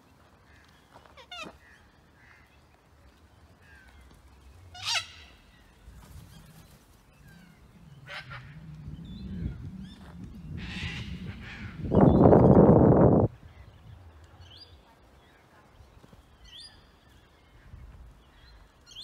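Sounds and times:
low hum: 4.0s - 15.0s.

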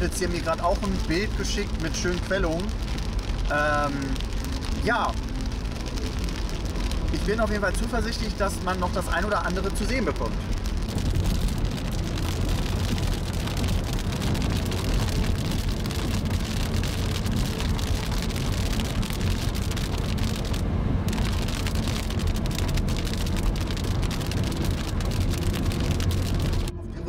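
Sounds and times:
rain ticking on windscreen: 0.0s - 27.0s
road and tyre noise: 0.0s - 27.0s.

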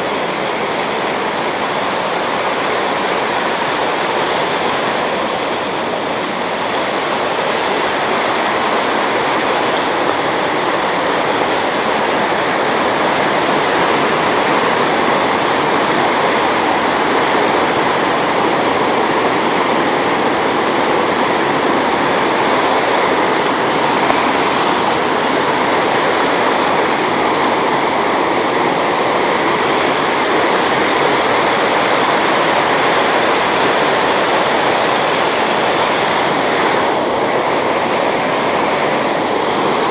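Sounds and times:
stream rushing over boulders: 0.0s - 39.9s.

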